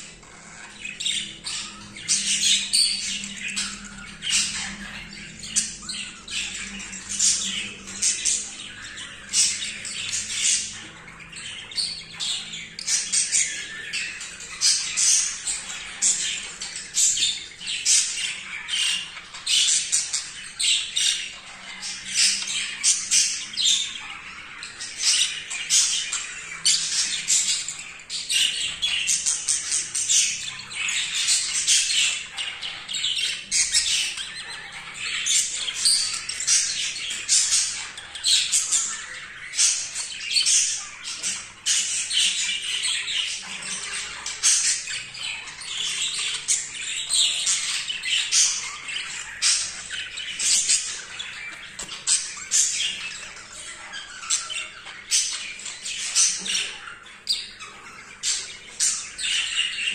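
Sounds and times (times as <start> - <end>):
budgerigars chattering: 0.0 - 59.9.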